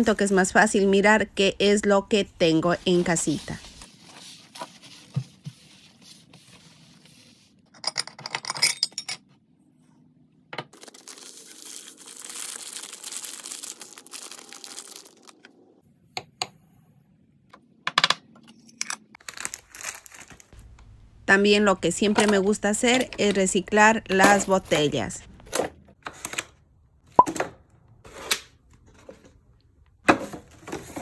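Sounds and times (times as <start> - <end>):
plastic bag crinkling: 10.8 - 15.5, 19.2 - 20.6.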